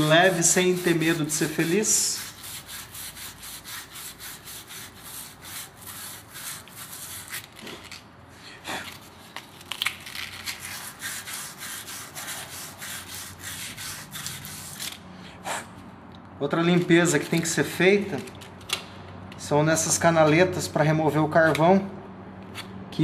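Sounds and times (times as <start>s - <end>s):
sandpaper scratching metal: 0.0s - 8.0s, 8.8s - 15.0s, 16.8s - 18.0s.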